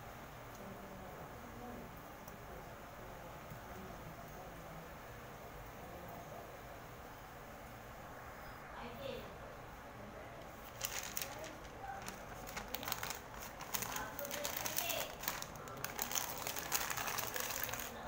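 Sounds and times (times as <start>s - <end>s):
wrapping paper crinkling: 10.4s - 18.0s.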